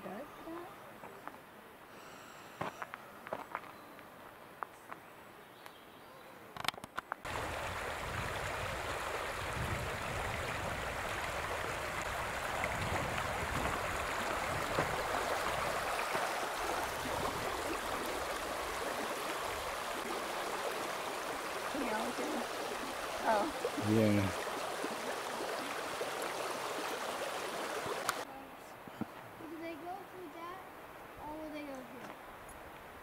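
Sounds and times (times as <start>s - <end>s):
river water running over gravel: 7.2s - 28.3s.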